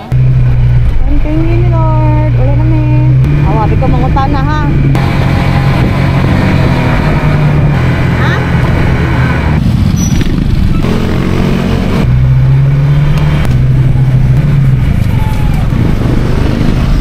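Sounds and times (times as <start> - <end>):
motor scooter engine running: 0.0 - 12.1
road noise: 0.0 - 17.0
steady low hum: 0.1 - 9.6
wind rushing over microphone: 0.8 - 12.1.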